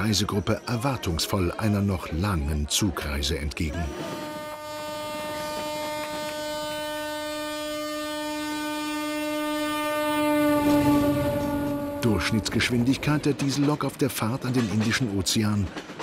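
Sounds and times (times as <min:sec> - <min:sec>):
locomotive horn long note: 0:03.8 - 0:13.4.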